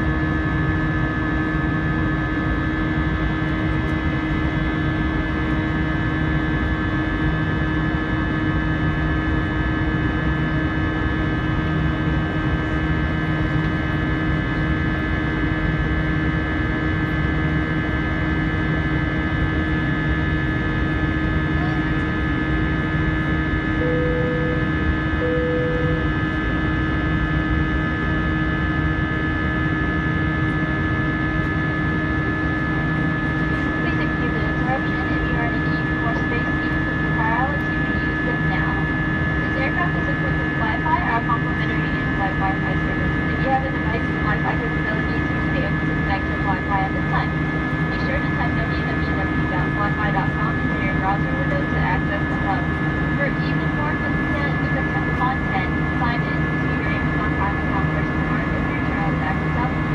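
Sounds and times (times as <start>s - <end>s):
airplane cabin engine drone: 0.0s - 59.9s
steady humming tones: 0.0s - 59.9s
short cabin tones: 23.7s - 26.5s.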